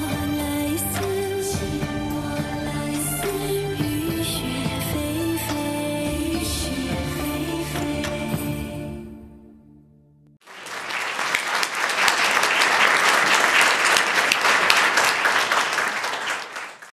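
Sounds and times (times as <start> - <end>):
audience applauding: 10.4 - 17.0.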